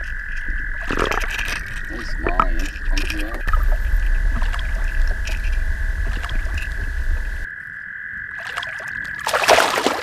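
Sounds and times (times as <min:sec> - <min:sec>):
heavy low underwater rumble: 0:00.0 - 0:07.5
steady high whine: 0:00.0 - 0:07.5.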